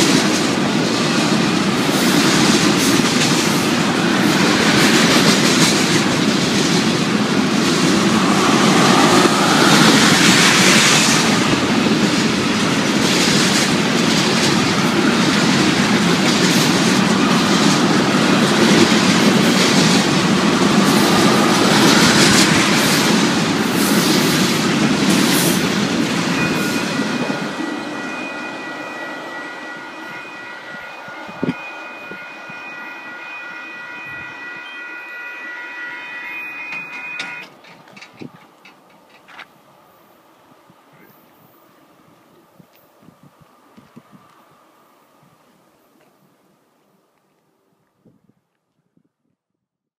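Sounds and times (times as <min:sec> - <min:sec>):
clickety-clack over rail joints: 0:00.0 - 0:27.8, 0:36.5 - 0:39.6
train wheels rumbling on rails: 0:00.0 - 0:40.0.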